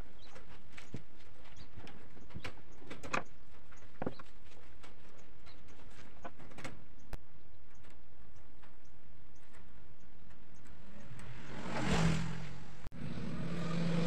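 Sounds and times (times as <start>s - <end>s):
wire mesh clicking and rattling: 0.0s - 11.6s.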